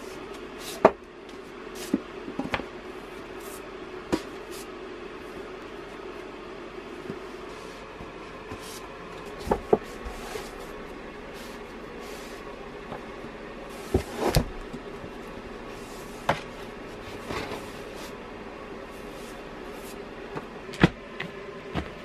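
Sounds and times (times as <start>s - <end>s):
faint steady hum: 0.0s - 22.0s
book covers sliding: 7.4s - 12.5s, 13.7s - 14.6s
books knocking against wooden shelves: 9.3s - 10.1s, 13.9s - 14.9s.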